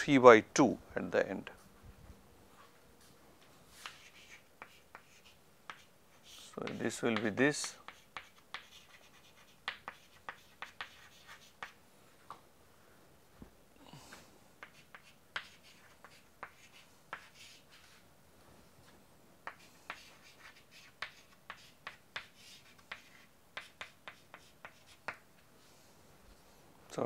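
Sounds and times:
chalk scratching: 3.7s - 11.8s, 14.6s - 18.0s, 19.4s - 25.2s
chalk tapping on chalkboard: 3.8s - 11.8s, 14.6s - 17.8s, 19.4s - 25.3s.

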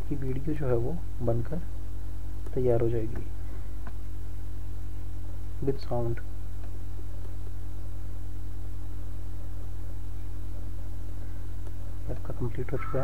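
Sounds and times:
low hum with faint hiss: 0.0s - 13.0s.

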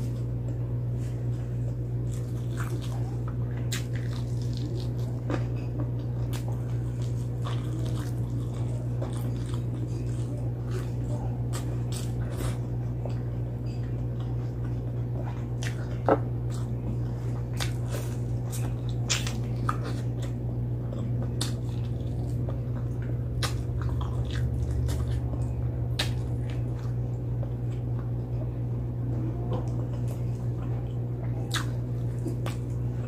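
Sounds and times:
steady low hum: 0.0s - 33.0s
mouth smacks and chewing: 17.4s - 28.2s, 29.5s - 32.8s.

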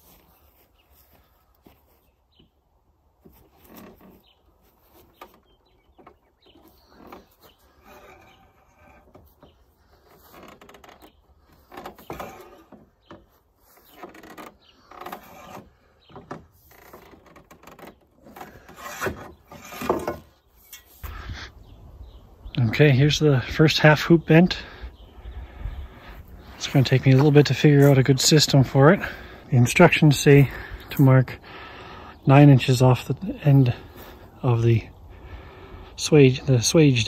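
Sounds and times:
metal-on-metal creaks: 3.3s - 21.1s.

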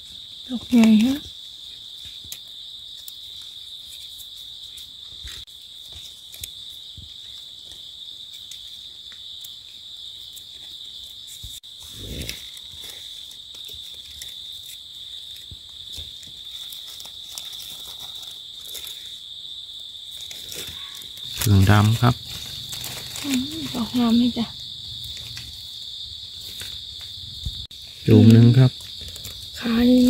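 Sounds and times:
insects droning: 0.0s - 30.0s.

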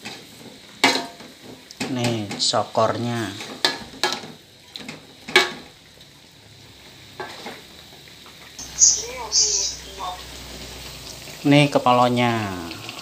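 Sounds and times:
faint sizzle from pan: 0.0s - 13.0s.

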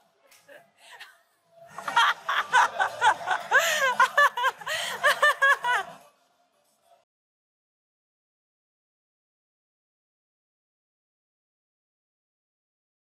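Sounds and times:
person laughing hard: 1.8s - 6.0s.

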